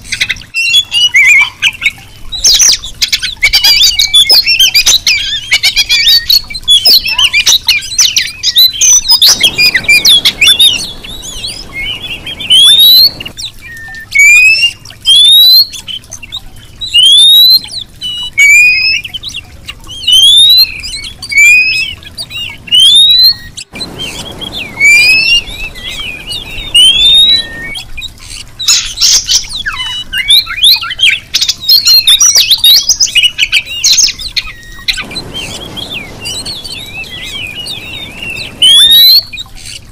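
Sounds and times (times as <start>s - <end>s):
bird chattering: 2.6s - 13.6s, 20.5s - 39.9s
bird rising whistles: 3.5s - 15.8s, 16.9s - 17.6s, 20.0s - 39.9s.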